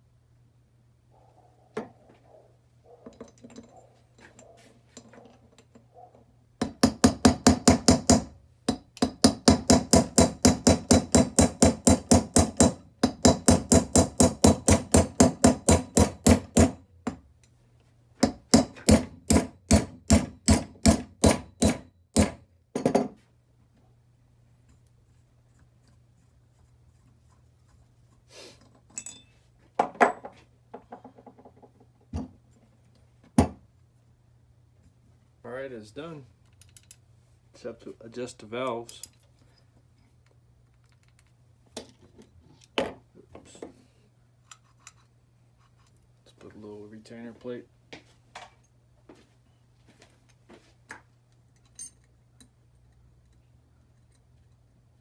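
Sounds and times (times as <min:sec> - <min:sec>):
hammer tapping on metal: 0:18.2 - 0:23.1.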